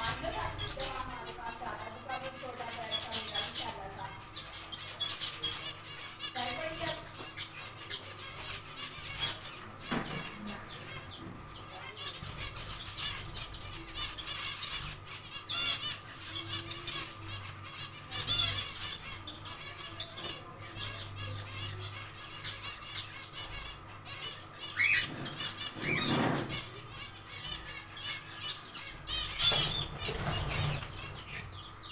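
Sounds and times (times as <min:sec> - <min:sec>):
finches chirping: 0:00.0 - 0:31.9
birds fluttering wings: 0:29.2 - 0:31.5.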